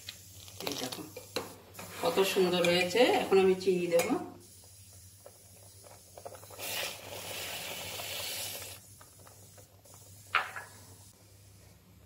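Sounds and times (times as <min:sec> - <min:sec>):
sugar pouring hiss: 0:04.4 - 0:11.5.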